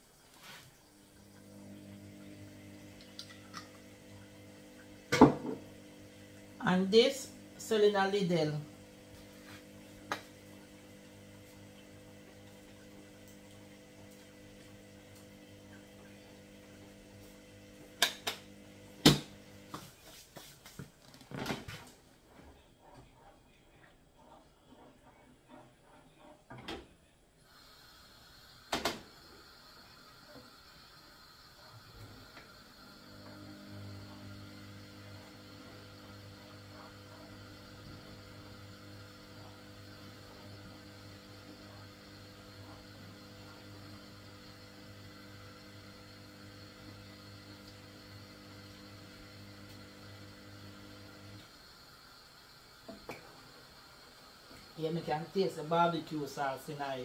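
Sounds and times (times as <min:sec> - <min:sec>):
low electrical hum: 0:00.0 - 0:20.2
low machine hum: 0:01.0 - 0:19.7, 0:29.2 - 0:57.0
faint hiss: 0:27.4 - 0:34.0, 0:51.3 - 0:57.0.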